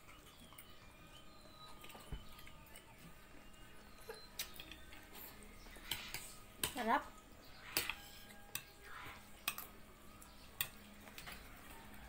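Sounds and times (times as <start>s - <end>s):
cutlery clinking on plates: 7.7s - 8.8s, 9.4s - 9.8s.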